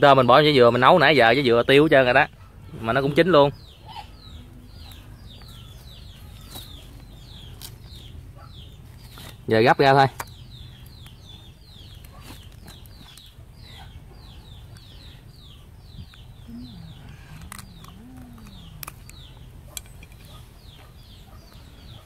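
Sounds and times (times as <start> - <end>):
chicks peeping: 2.9 - 22.0
low wavering call: 16.4 - 19.6.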